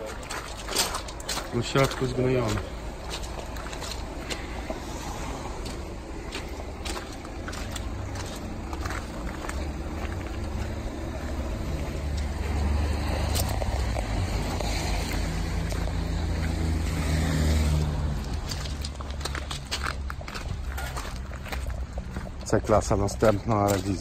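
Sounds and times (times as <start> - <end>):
footsteps on gravel: 0.0 - 24.0.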